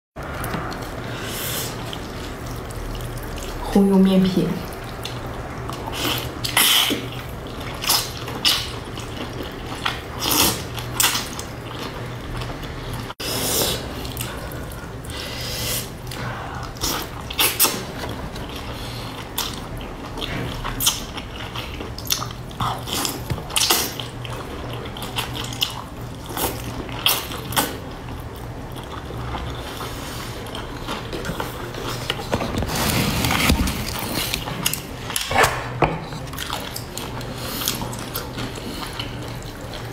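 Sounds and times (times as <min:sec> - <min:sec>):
chewing and lip smacks: 0:04.6 - 0:13.1, 0:16.0 - 0:32.3.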